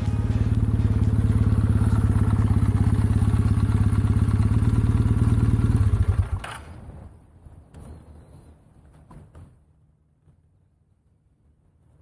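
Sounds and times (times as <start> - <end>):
motorcycle engine at low revs: 0.0 - 7.1.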